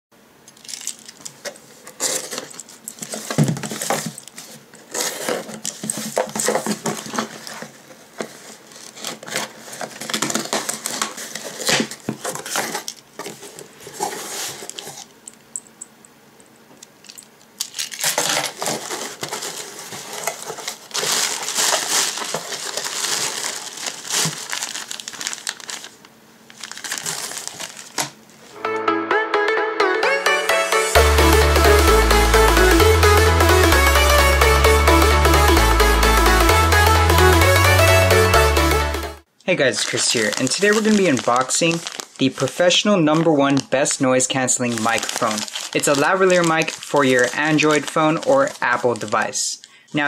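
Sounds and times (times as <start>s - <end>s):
plastic packing crinkling: 0.6s - 15.2s, 17.6s - 28.6s, 39.5s - 49.8s
tape tearing: 17.6s - 28.2s, 39.8s - 42.5s, 44.7s - 49.2s.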